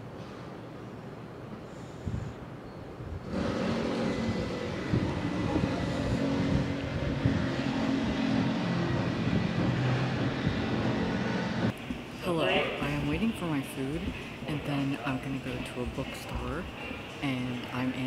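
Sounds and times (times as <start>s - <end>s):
street traffic noise: 0.0s - 18.0s
vehicle engine running: 3.3s - 11.7s.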